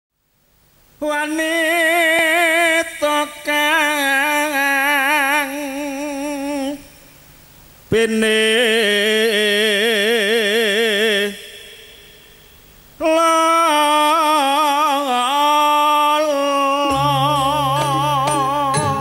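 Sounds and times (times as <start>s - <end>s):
person singing with vibrato: 1.0s - 7.2s, 7.9s - 19.0s
low sustained instrument note: 16.9s - 19.0s.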